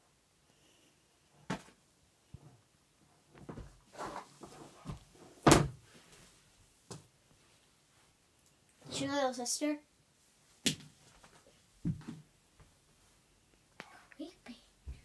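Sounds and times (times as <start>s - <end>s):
knocks and thumps: 11.8s - 12.3s.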